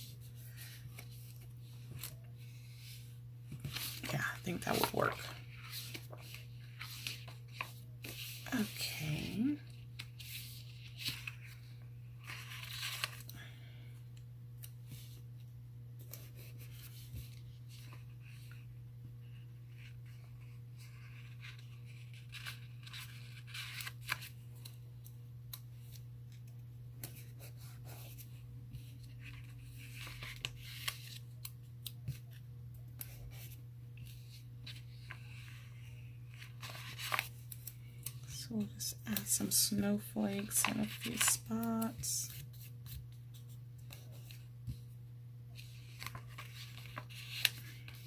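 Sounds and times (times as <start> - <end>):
paper rustling: 0.3 - 8.8, 9.7 - 13.3, 36.3 - 38.3, 39.2 - 44.8, 45.6 - 48.0.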